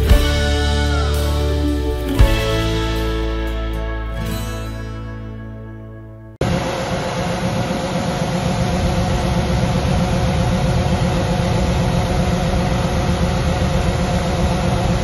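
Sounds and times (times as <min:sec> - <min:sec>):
combine engine running: 0:06.4 - 0:15.0.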